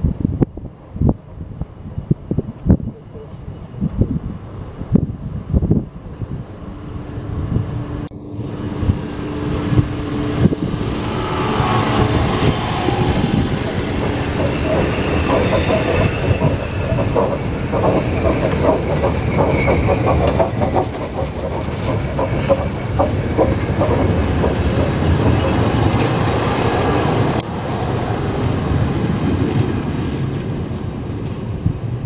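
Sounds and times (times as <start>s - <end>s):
train running rumble: 3.8s - 32.0s
wheels clattering over rail joints: 8.8s - 27.4s.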